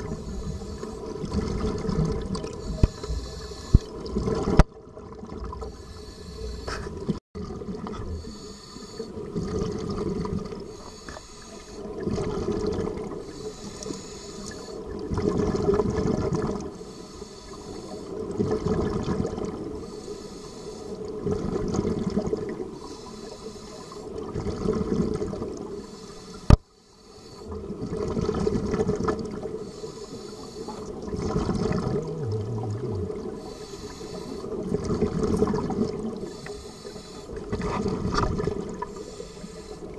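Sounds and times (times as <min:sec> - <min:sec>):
diver breathing through regulator: 0:00.0 - 0:01.2, 0:02.6 - 0:04.1, 0:05.6 - 0:07.1, 0:08.0 - 0:09.2, 0:10.6 - 0:12.0, 0:13.2 - 0:14.9, 0:16.8 - 0:18.2, 0:19.8 - 0:21.2, 0:22.7 - 0:24.2, 0:25.8 - 0:27.6, 0:29.5 - 0:31.0, 0:31.8 - 0:34.7, 0:36.2 - 0:37.9, 0:38.8 - 0:39.9.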